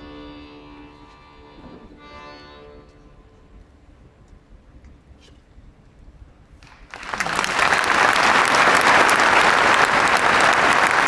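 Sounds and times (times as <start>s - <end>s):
audience applause: 6.6s - 11.0s.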